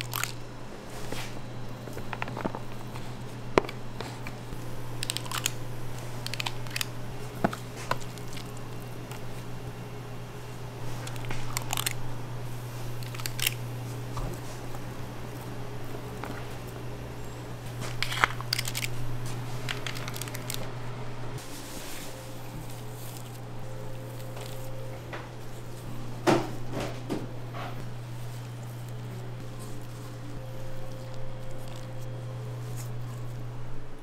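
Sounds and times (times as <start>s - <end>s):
metal scoops clicking and scraping: 0.0s - 0.4s, 1.9s - 9.5s, 10.8s - 12.1s, 12.9s - 13.7s, 17.6s - 20.8s, 27.5s - 33.5s
steady low hum: 0.0s - 34.0s.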